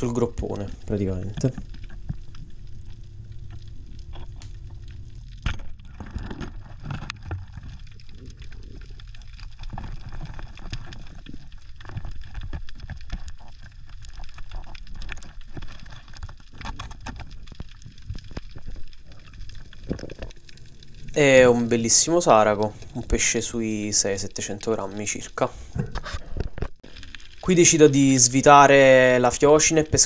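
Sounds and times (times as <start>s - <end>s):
muffled underwater rumble: 0.0s - 27.8s
underwater clicks and knocks: 1.3s - 20.6s.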